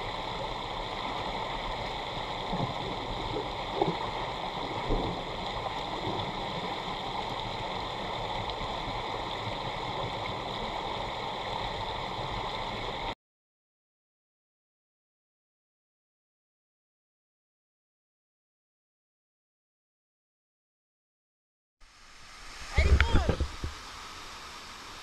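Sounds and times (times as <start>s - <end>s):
muffled underwater rushing hiss: 0.0s - 13.2s, 21.8s - 25.0s.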